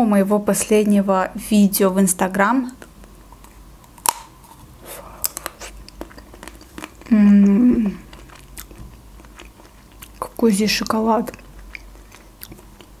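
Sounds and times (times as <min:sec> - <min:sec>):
crackling chewing: 0:02.7 - 0:13.0
chocolate shell cracking: 0:03.8 - 0:04.6
person humming: 0:07.1 - 0:08.1.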